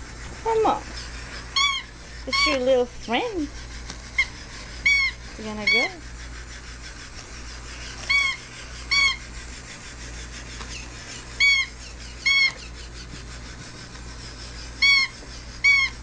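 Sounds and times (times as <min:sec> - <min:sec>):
electronic toy cat meowing: 0:01.6 - 0:02.6.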